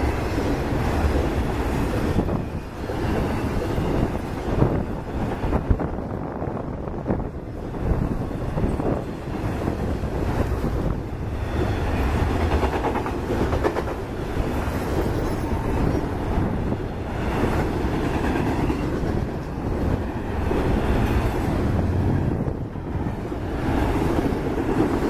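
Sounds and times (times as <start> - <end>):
rumble of wheels on track: 0.0 - 25.0
wheels clicking over rail joints: 8.2 - 25.0.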